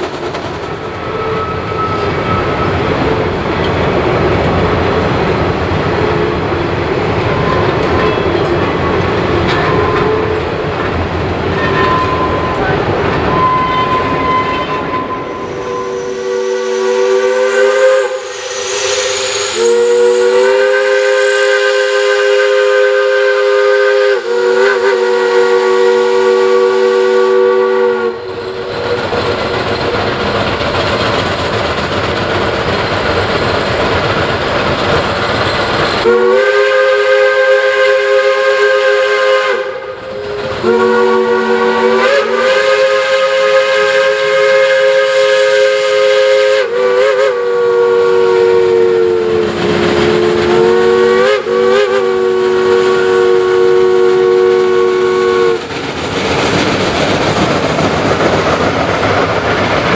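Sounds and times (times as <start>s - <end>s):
steam whistle chord blasts: 11.6s - 28.7s, 36.0s - 55.6s
locomotive steam hiss: 15.2s - 57.4s.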